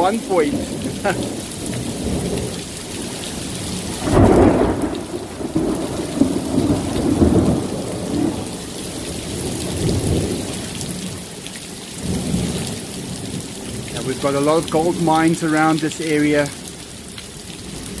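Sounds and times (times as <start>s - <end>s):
thunder rumbling: 0.0s - 11.0s
steady rain: 0.0s - 18.0s.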